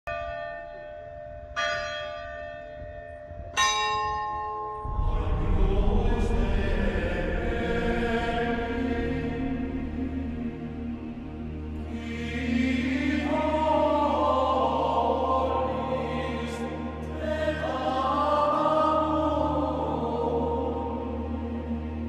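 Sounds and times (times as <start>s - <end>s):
church bell ringing: 0.1s - 5.0s
choral music: 0.1s - 22.0s.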